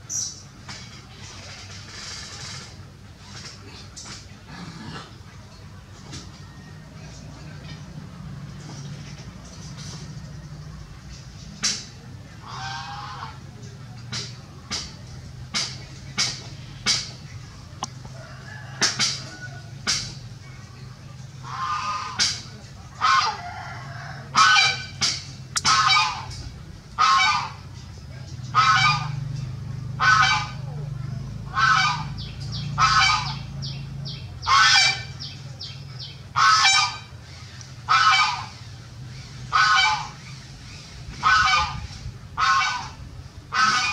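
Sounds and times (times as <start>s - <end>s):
animal making harsh calls: 24.3s - 26.4s, 31.5s - 33.5s, 36.4s - 38.7s, 39.4s - 43.9s.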